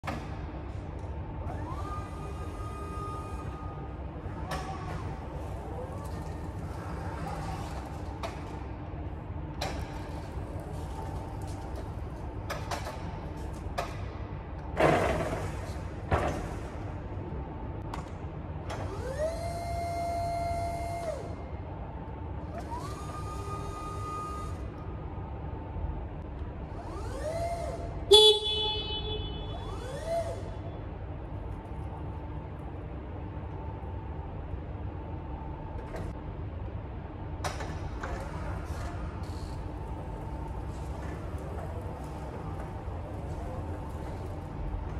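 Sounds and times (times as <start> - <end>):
hydraulic pump motor whining: 22.5 - 24.7, 26.7 - 28.1, 29.5 - 30.6
short sharp tone: 28.1 - 29.6.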